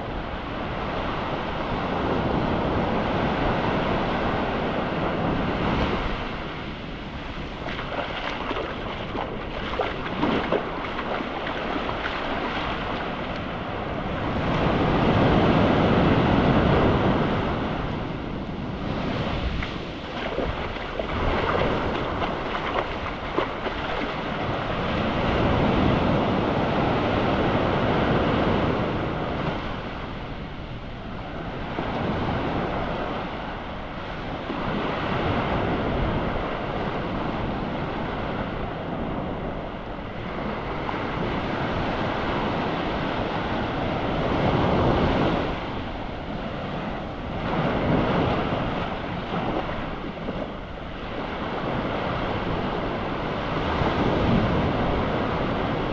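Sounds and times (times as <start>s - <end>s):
wind on microphone: 0.0s - 55.9s
surf washing onto beach: 0.4s - 30.3s.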